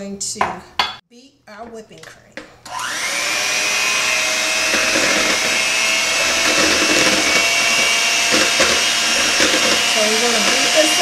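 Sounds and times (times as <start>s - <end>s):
electric hand mixer whipping cream: 2.7s - 11.0s.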